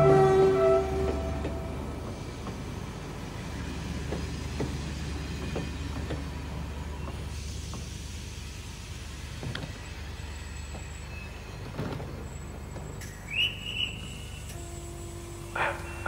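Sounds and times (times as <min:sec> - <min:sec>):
train hiss: 0:00.0 - 0:11.6, 0:13.0 - 0:16.0
train low rumble: 0:00.0 - 0:16.0
train wheels clicking and knocking: 0:01.0 - 0:08.0.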